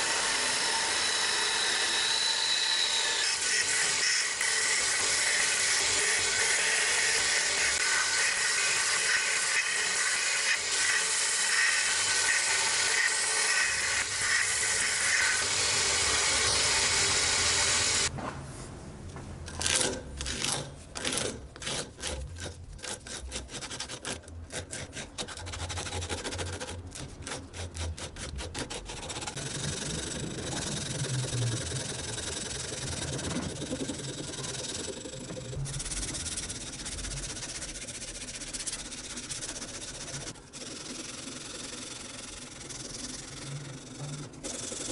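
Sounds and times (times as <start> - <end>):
belt sander grinding wood: 0.0 - 18.1, 27.4 - 44.9
sandpaper rubbing wood by hand: 21.6 - 44.9.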